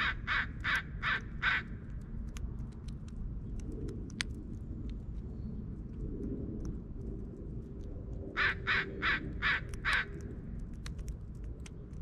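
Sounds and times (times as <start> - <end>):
crow cawing: 0.0 - 1.8, 8.4 - 10.2
steady low rumble: 0.0 - 12.0
sharp ticks: 7.8 - 12.0.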